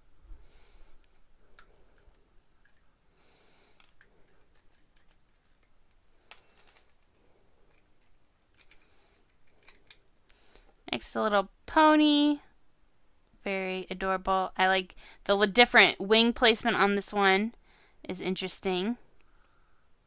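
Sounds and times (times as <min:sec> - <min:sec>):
toy egg shell cracking: 0:03.8 - 0:07.0, 0:07.6 - 0:10.4.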